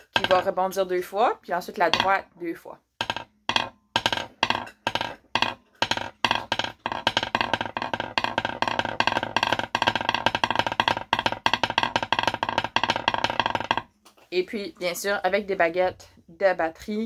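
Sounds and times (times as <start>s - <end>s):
sticks drumming roll on wooden table: 0.0s - 0.8s, 1.8s - 2.2s, 3.0s - 14.0s.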